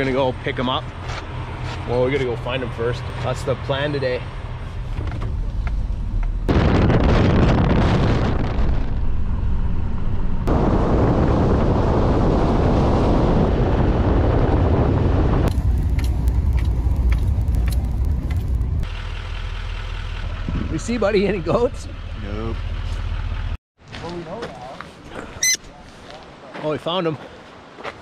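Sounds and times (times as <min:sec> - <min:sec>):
road and wind rush: 0:00.0 - 0:23.6
wind buffeting microphone: 0:04.9 - 0:18.9.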